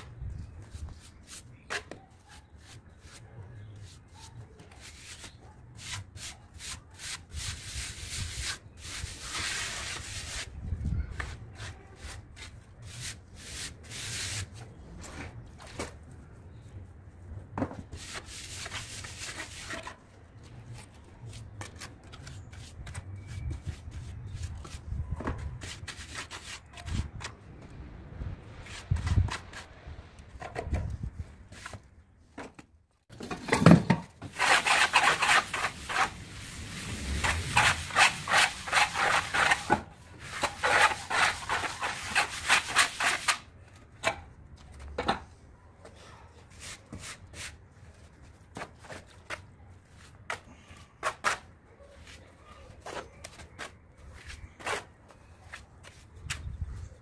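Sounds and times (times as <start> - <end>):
trowel scraping cement: 4.7 - 10.5, 18.0 - 20.0, 34.2 - 43.5.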